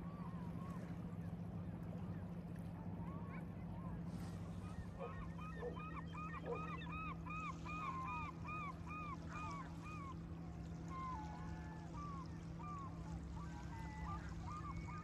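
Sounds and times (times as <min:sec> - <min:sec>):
waterfowl honking: 0:04.9 - 0:06.9.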